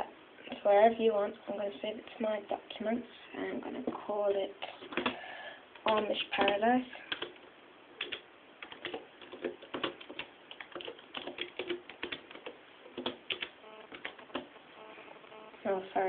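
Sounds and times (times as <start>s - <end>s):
keyboard typing clicks: 5.8s - 7.4s, 8.0s - 14.6s.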